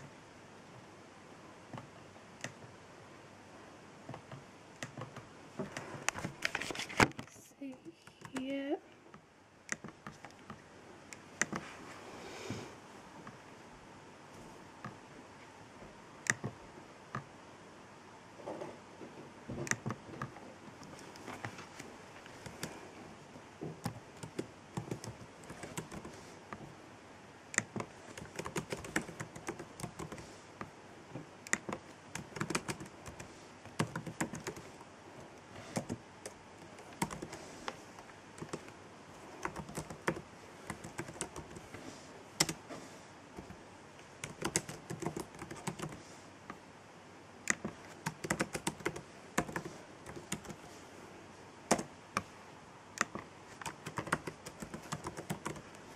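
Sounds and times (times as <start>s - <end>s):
laptop keyboard typing: 1.7s - 2.7s, 4.1s - 8.6s, 9.6s - 10.6s, 11.2s - 11.7s, 16.2s - 17.3s, 19.6s - 22.9s, 23.7s - 26.7s, 27.5s - 30.7s, 31.4s - 34.8s, 35.6s - 42.7s, 43.4s - 46.1s, 47.5s - 50.7s, 51.7s - 52.3s, 53.0s - 55.9s.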